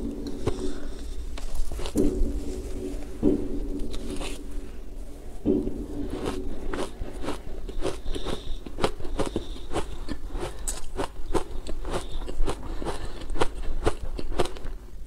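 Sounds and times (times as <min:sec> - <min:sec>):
ice being chewed: 0:06.0 - 0:14.8.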